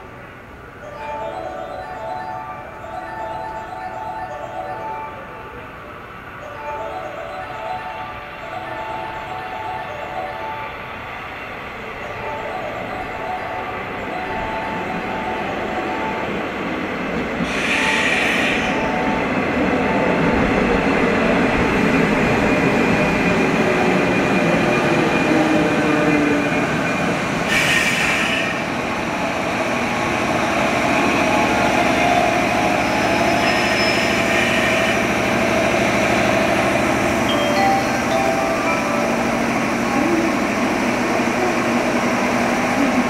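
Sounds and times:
electric train wheel and running noise: 0:05.5 - 0:43.0
short high hisses: 0:17.4 - 0:18.7.

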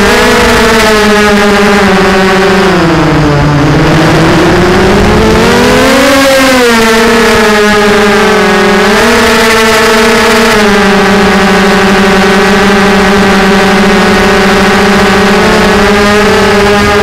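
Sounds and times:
quadcopter motors whining: 0:00.0 - 0:17.0.

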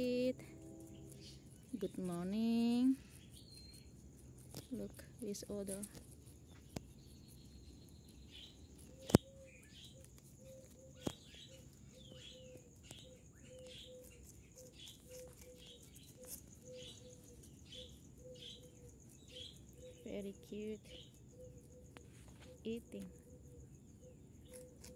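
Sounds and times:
faint low repeating note: 0:00.0 - 0:03.0
high-pitched hum: 0:00.0 - 0:05.6
birds chirping: 0:00.0 - 0:24.9.

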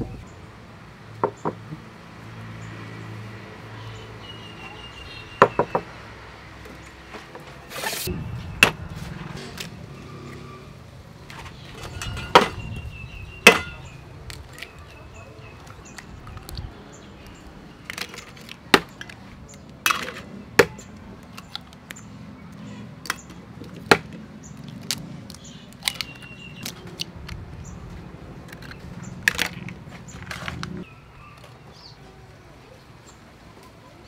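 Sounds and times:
low hum: 0:08.1 - 0:11.3
eggshells cracking: 0:23.0 - 0:27.4.

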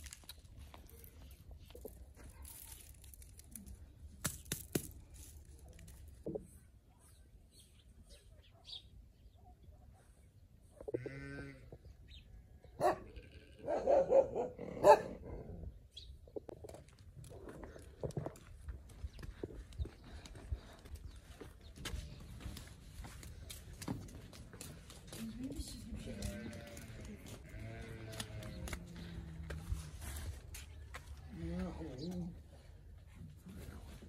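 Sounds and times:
livestock bleating: 0:10.9 - 0:11.8, 0:13.1 - 0:13.7, 0:26.0 - 0:28.7.

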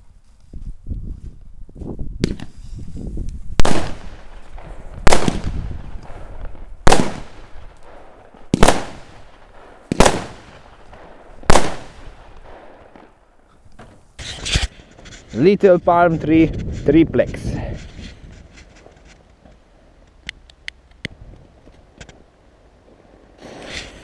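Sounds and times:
fireworks bangs with echo: 0:03.6 - 0:13.2.

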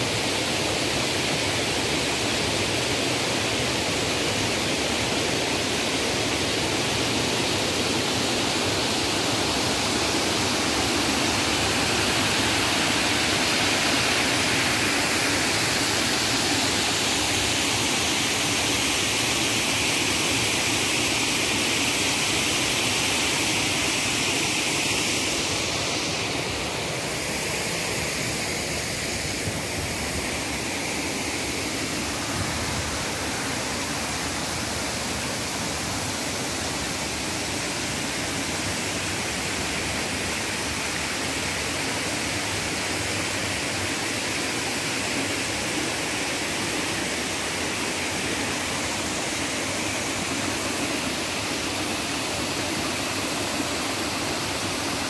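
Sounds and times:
water cascading over a weir: 0:00.0 - 0:55.0.

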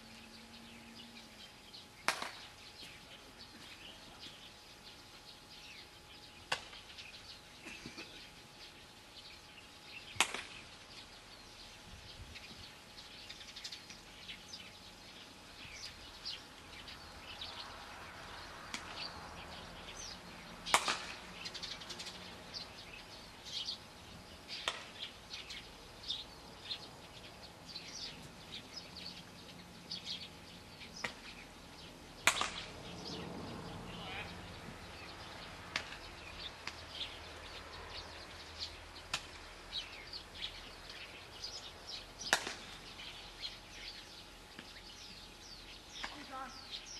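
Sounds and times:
birds chirping: 0:00.0 - 0:46.9
bat hitting ball: 0:02.1 - 0:02.4, 0:20.7 - 0:21.2, 0:32.2 - 0:32.7, 0:42.3 - 0:42.7.

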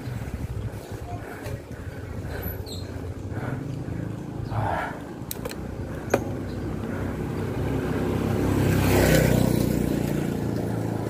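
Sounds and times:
vehicle engine passing by: 0:03.2 - 0:11.0.

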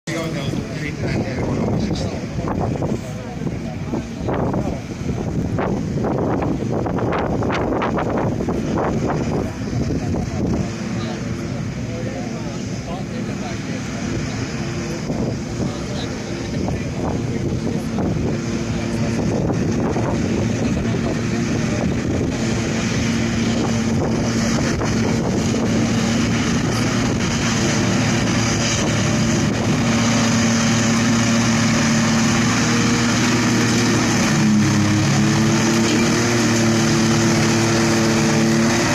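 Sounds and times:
tractor engine: 0:00.0 - 0:38.9
forage harvester chopping grass: 0:13.4 - 0:38.9.

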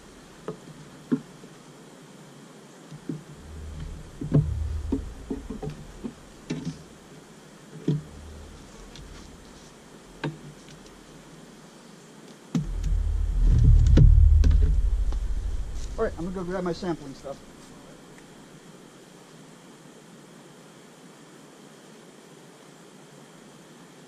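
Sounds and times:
wind rumble on microphone: 0:03.3 - 0:06.9, 0:07.9 - 0:10.2, 0:12.6 - 0:17.7.

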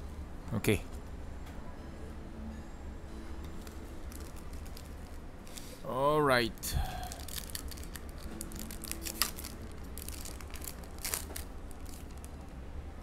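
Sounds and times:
foil pack tearing and crinkling: 0:07.0 - 0:12.4.

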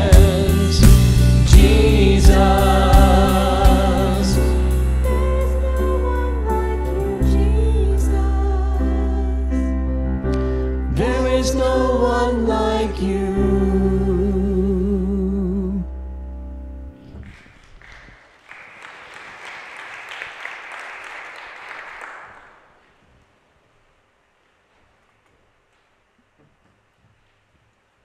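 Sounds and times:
vocal group singing: 0:00.0 - 0:09.7, 0:10.9 - 0:15.8
congregation applauding: 0:17.2 - 0:23.0.

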